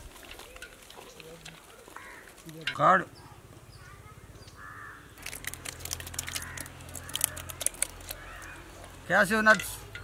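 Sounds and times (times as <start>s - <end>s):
crow cawing: 1.9s - 2.4s, 4.2s - 5.2s, 6.1s - 8.8s.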